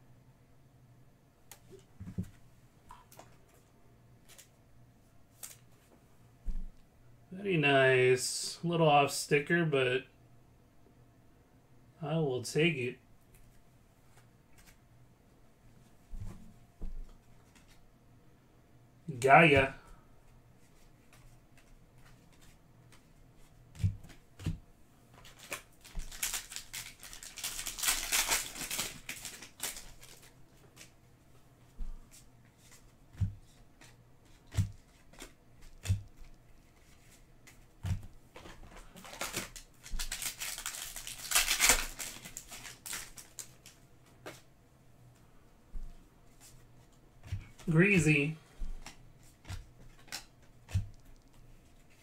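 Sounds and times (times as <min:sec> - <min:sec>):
cards sliding and rustling: 0:14.1 - 0:14.8, 0:32.1 - 0:44.5.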